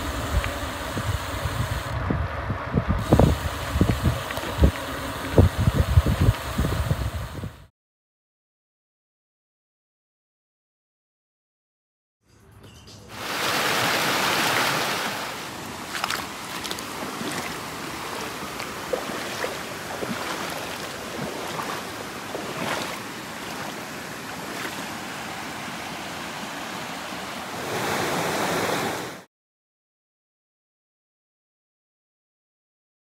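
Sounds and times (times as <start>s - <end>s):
steady rushing noise: 0.0s - 7.7s.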